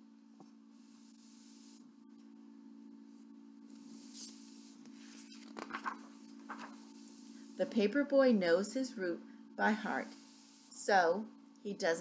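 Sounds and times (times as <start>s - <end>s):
steady low hum: 0.0s - 12.0s
book pages rustling: 4.9s - 6.8s.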